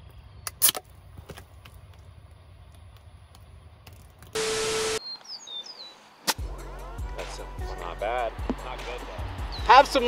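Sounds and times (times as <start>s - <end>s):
loud hiss with steady hum: 4.4s - 5.0s.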